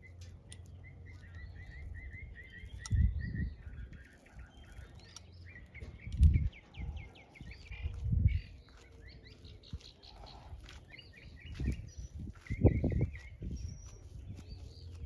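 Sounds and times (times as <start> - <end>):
small birds chirping: 0.0 - 15.0
dull low thumps: 5.7 - 8.7, 9.6 - 15.0.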